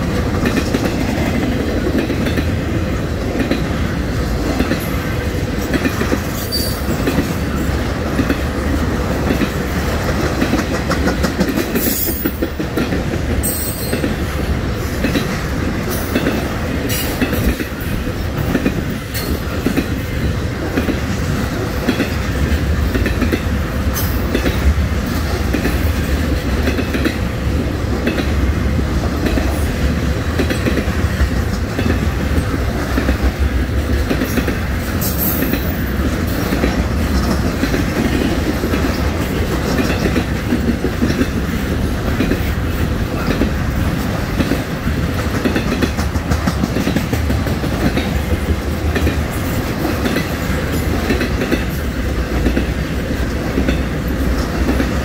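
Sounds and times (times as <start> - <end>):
freight train rumbling: 0.0 - 55.0
wheels clacking over rail joints: 0.0 - 55.0.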